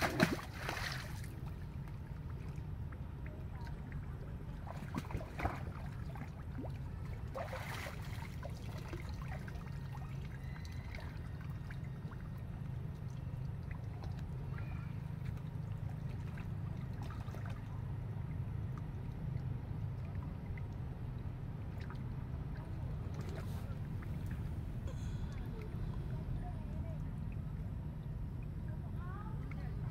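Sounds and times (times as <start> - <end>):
monkeys splashing in water: 0.0 - 1.6, 4.6 - 6.6, 7.2 - 12.0
steady low rumble: 0.0 - 29.9.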